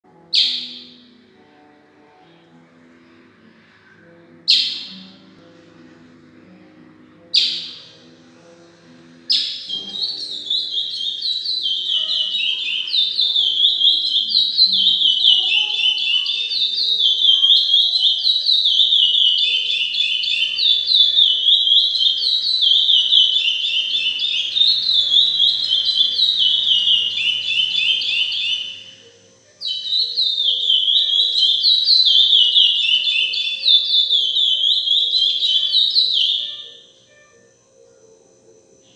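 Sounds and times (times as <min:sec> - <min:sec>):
finch warbling song: 0:00.3 - 0:01.1, 0:04.5 - 0:05.2, 0:07.2 - 0:08.0, 0:09.3 - 0:37.0
finch call notes: 0:09.3 - 0:37.1.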